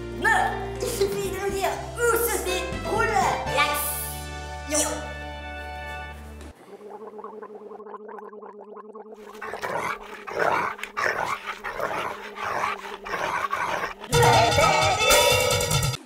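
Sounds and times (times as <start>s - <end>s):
creature growling and snarling: 9.2s - 14.8s.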